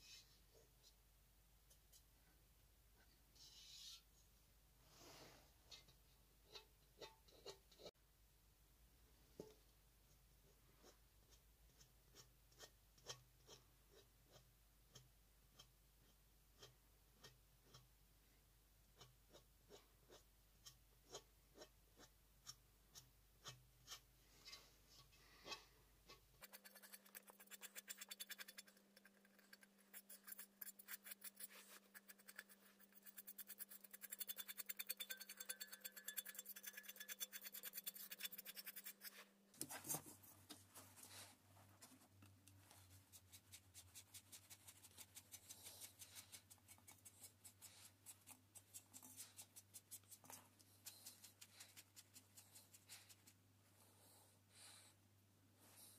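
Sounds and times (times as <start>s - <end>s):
scraping on steel helmet: 3.4s - 4.1s.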